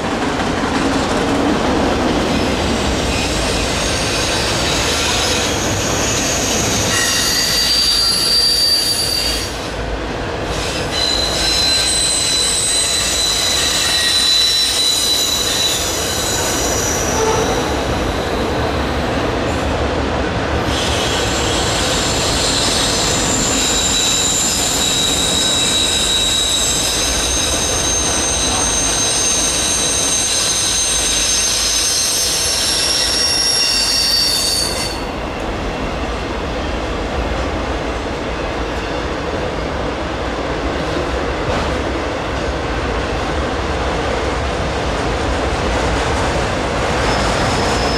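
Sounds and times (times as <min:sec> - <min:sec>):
freight train wheels rumbling: 0:00.0 - 0:47.9
wheel flanges squealing: 0:10.9 - 0:17.9, 0:21.0 - 0:35.1.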